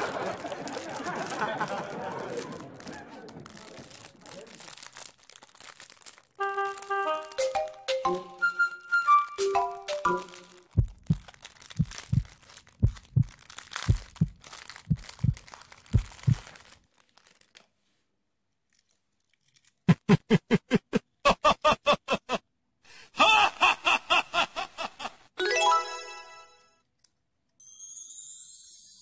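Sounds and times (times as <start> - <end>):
plastic wrapper crinkling and tearing: 0.0 - 7.9, 8.6 - 19.9
flute-like tune: 6.4 - 10.7, 25.4 - 26.7.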